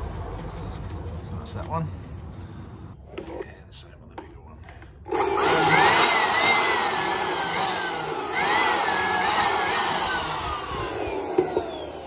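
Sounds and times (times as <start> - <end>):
electric blower motor whine: 5.1 - 12.0.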